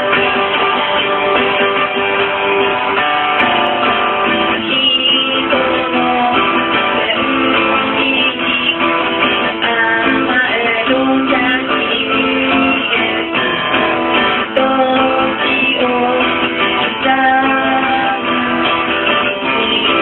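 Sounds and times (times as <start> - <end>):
acoustic guitar: 0.0 - 20.0
woman singing: 4.2 - 20.0.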